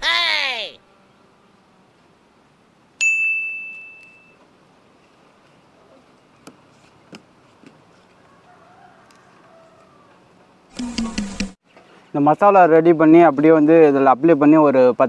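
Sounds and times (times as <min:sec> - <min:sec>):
metallic ding: 0:03.0 - 0:04.4.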